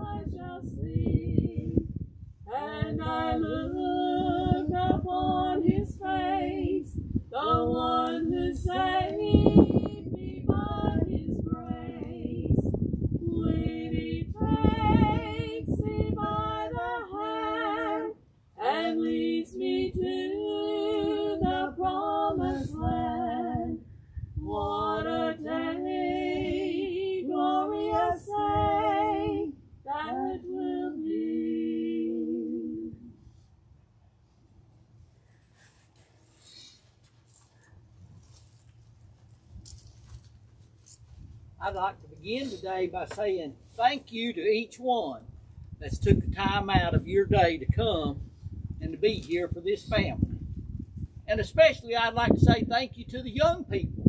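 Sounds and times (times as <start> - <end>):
woman singing unaccompanied: 0.0 - 1.8, 2.5 - 23.8, 24.4 - 33.0.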